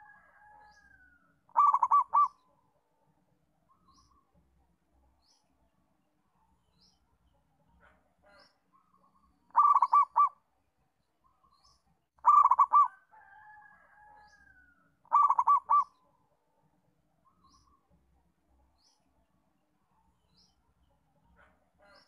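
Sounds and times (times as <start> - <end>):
small birds chirping: 0.6 - 3.0, 3.6 - 13.0, 14.2 - 16.3, 17.2 - 22.0
dove cooing: 1.5 - 2.4, 9.5 - 10.4, 12.2 - 13.0, 15.0 - 16.0.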